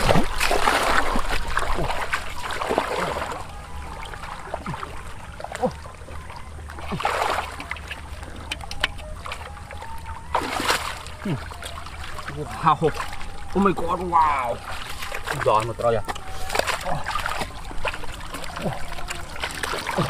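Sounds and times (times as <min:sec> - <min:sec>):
muddy water sloshing and splashing: 0:00.0 - 0:20.0.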